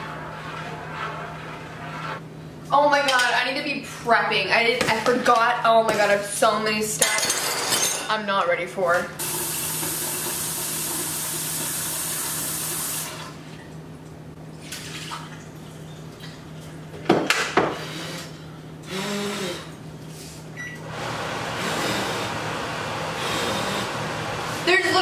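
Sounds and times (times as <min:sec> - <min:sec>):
kitchenware clattering: 0:07.0 - 0:08.6.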